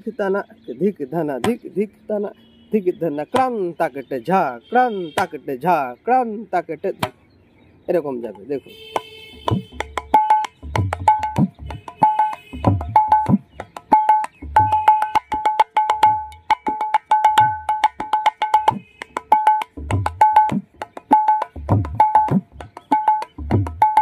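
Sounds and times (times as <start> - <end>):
hand drum ringing treble strokes: 9.5 - 24.0.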